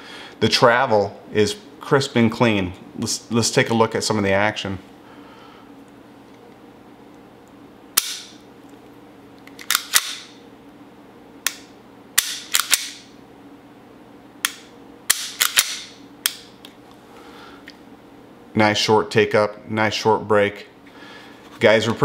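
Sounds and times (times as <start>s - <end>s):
pistol metallic clicks: 8.0s - 8.4s, 9.5s - 10.3s, 11.4s - 13.1s, 14.4s - 16.5s.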